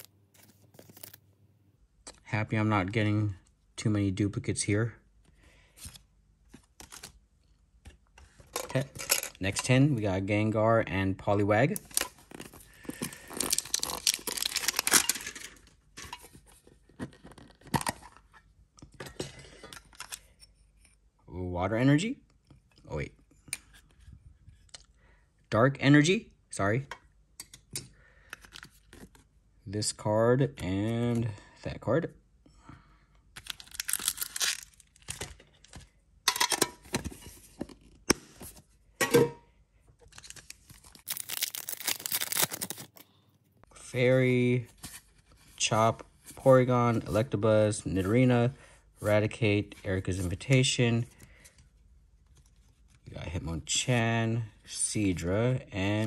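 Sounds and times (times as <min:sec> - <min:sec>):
foil pack crinkling: 0:11.9 - 0:15.4, 0:33.4 - 0:35.3, 0:40.2 - 0:43.1.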